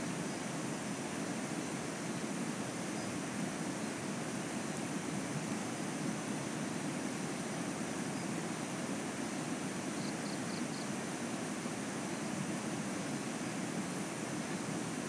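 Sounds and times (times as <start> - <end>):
faint high buzz: 0.0 - 15.0.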